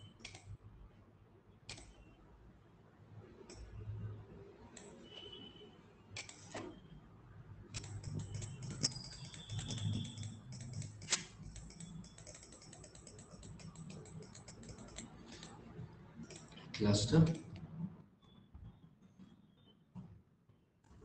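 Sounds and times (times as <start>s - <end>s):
computer mouse clicking: 0.1s - 0.5s, 1.7s - 2.0s, 3.4s - 3.8s, 4.7s - 5.4s, 6.2s - 6.7s, 7.7s - 17.7s.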